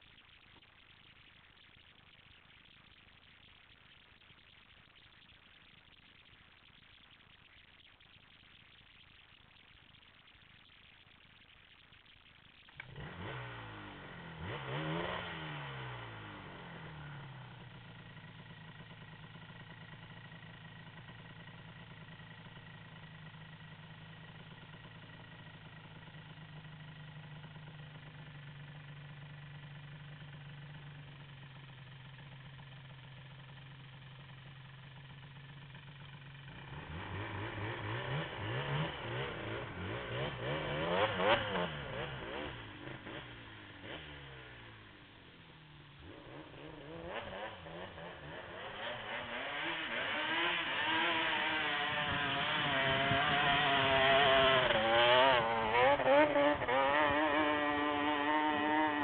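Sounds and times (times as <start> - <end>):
atv engine revving and idling: 12.7 - 59.0.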